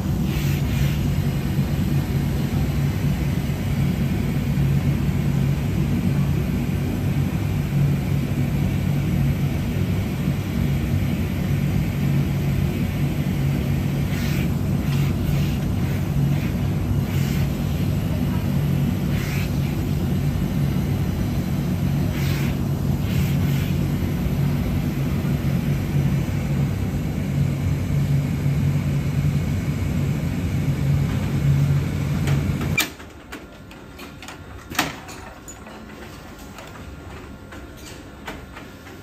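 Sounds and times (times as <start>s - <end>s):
workshop machinery hum: 0.0s - 39.0s.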